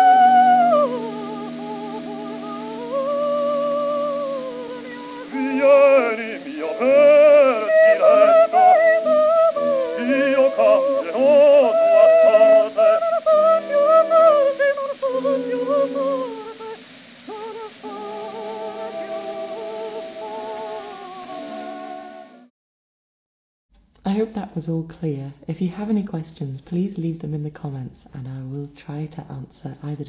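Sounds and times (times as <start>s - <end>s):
soprano and baritone singing a duet: 0.0s - 22.4s
held instrumental accompaniment: 0.0s - 22.5s.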